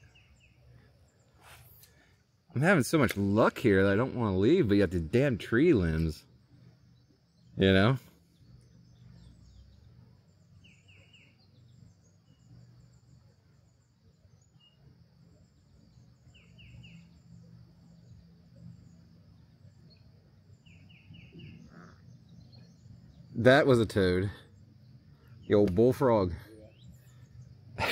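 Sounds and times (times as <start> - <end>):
bird calling: 19.8 - 27.9.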